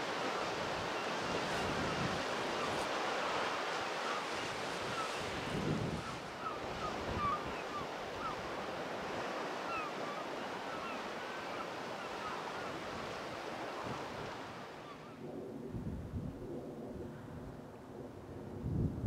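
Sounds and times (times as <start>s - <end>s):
sea surf on shore: 0.0s - 15.2s.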